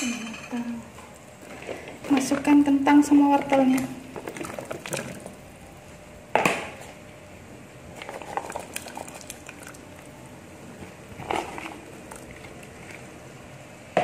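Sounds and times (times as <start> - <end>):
soup bubbling: 3.8 - 5.8, 7.9 - 13.4.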